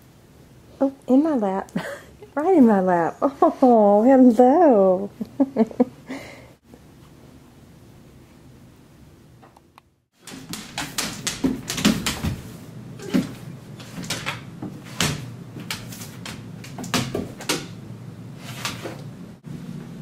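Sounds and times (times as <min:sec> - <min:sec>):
claws clicking on floor: 0:10.2 - 0:12.4
dogs thumping on wooden floor: 0:10.2 - 0:17.8.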